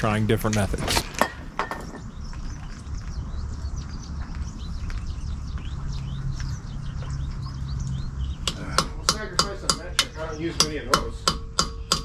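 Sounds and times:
hammer striking metal chisel: 8.4s - 12.0s.

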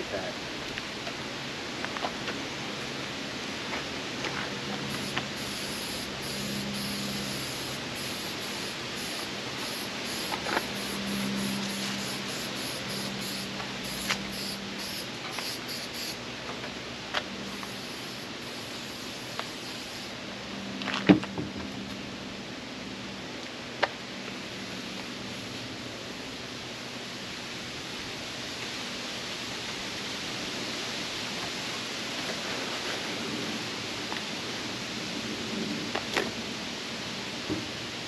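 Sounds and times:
aerosol can spraying: 4.8s - 16.2s, 17.5s - 20.2s.

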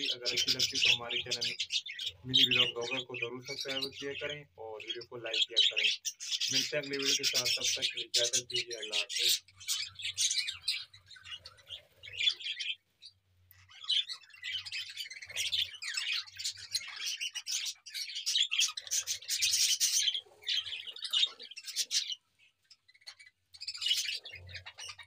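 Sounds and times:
budgerigars chirping: 0.0s - 25.0s.

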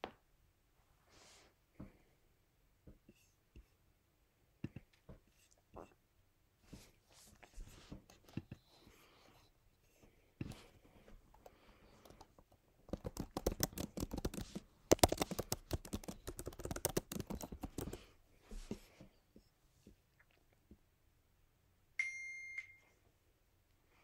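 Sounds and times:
keyboard key clicks: 12.9s - 18.0s.

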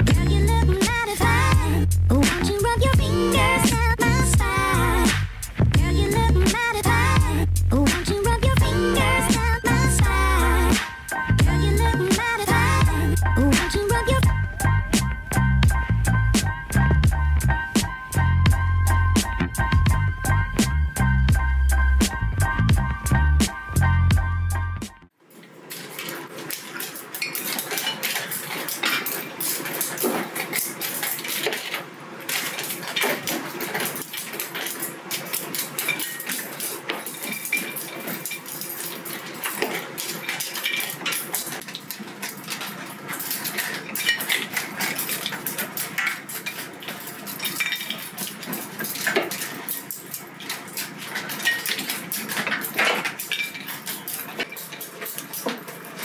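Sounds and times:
crackers clattering on wire grill: 25.4s - 56.0s.

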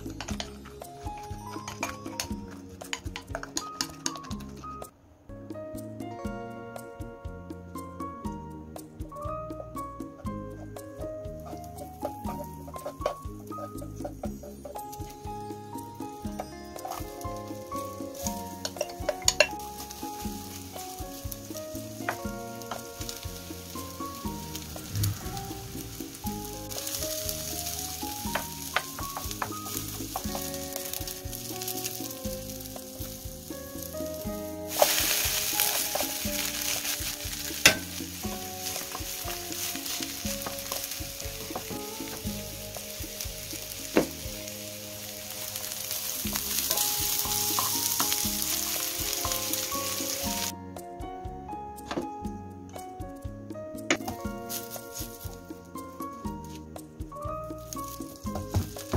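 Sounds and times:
patty sizzling in a pan: 10.4s - 50.5s
wooden spoon scraping a pan: 11.5s - 15.0s, 18.0s - 50.5s.

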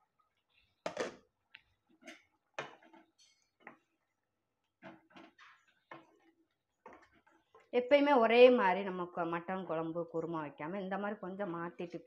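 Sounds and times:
gravy bubbling with faint plops: 0.0s - 7.8s.

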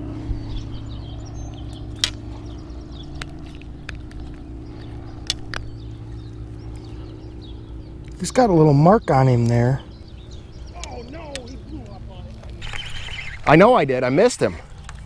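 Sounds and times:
faint bird chirps: 0.0s - 15.0s
steady low hum: 0.0s - 15.0s
sharp clicks: 1.5s - 2.3s, 3.0s - 6.9s, 10.7s - 13.6s.

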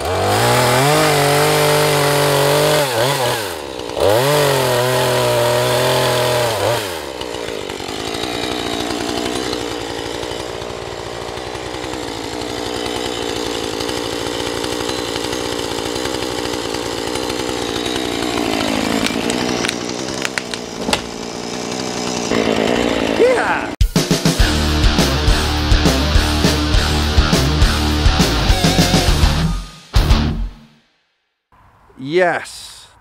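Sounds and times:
chainsaw running and idling: 0.0s - 23.8s, 24.4s - 29.4s
sharp cracks: 18.2s - 21.3s.

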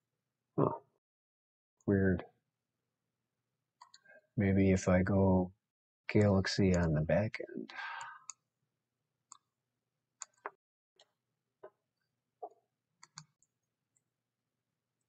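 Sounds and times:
faint keyboard and mouse clicks: 3.8s - 4.1s, 6.1s - 7.0s, 9.3s - 9.5s, 10.2s - 11.8s, 12.4s - 14.1s.

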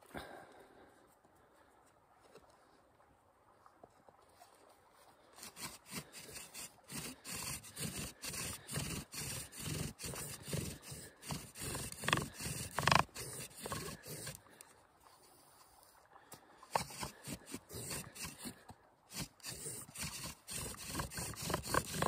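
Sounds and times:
bow drill spindle grinding wood: 5.4s - 14.6s, 16.7s - 22.0s.

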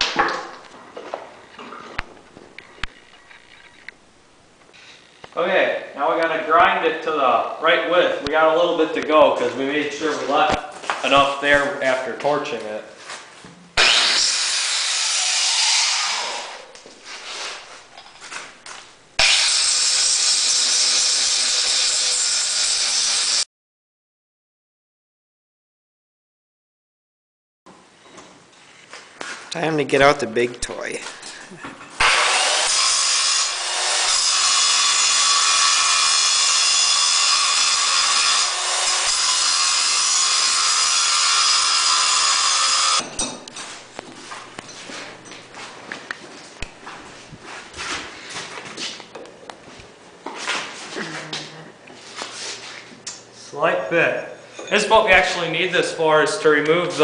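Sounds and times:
angle grinder grinding steel: 13.8s - 18.4s, 19.2s - 23.4s, 32.0s - 43.8s.

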